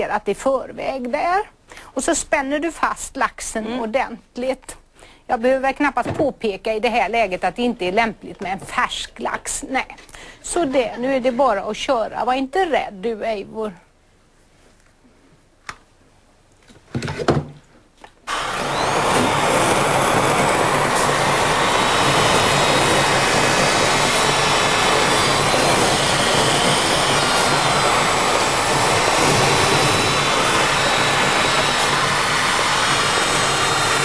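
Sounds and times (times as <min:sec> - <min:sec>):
electric hand planer running: 0:18.3 - 0:34.0.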